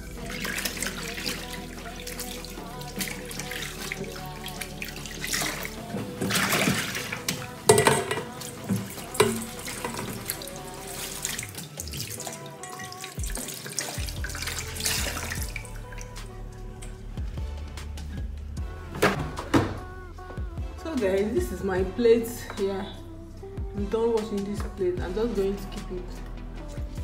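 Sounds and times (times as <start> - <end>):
water splashing on dishes: 0.0 - 16.3
background music: 0.0 - 27.0
tap running into metal sink: 5.5 - 10.3.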